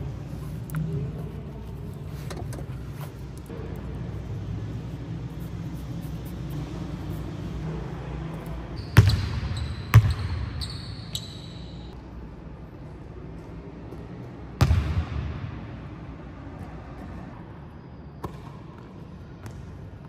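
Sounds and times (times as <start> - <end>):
basketball bouncing on court: 8.8 - 11.4, 13.9 - 15.5, 18.2 - 19.8
short high shoe squeaks: 8.8 - 11.9.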